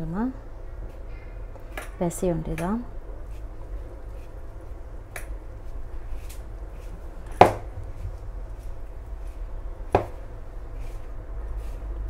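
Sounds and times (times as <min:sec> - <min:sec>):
hand mixing dough in bowl: 0:02.7 - 0:12.0.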